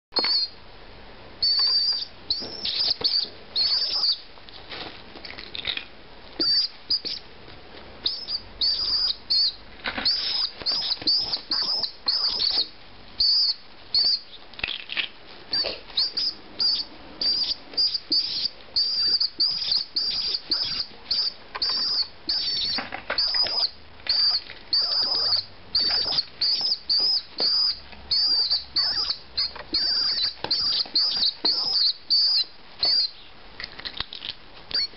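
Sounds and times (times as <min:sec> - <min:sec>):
young pigeon peeping: 0:00.1 - 0:00.6, 0:01.4 - 0:04.3, 0:05.3 - 0:07.3, 0:08.0 - 0:34.9
rustling on bubble wrap: 0:04.4 - 0:05.9.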